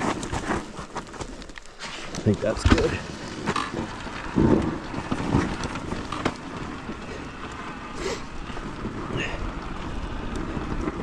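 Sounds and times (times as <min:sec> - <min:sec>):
tyres on gravel: 0:00.0 - 0:11.0
dirt bike knocking over ruts: 0:02.5 - 0:06.9.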